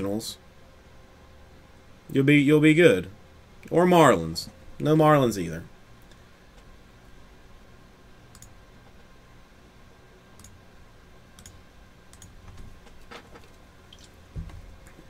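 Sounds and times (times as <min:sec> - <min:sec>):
low room hum: 0:00.0 - 0:15.0
computer clicks: 0:08.3 - 0:08.6, 0:10.4 - 0:10.6, 0:11.4 - 0:12.4.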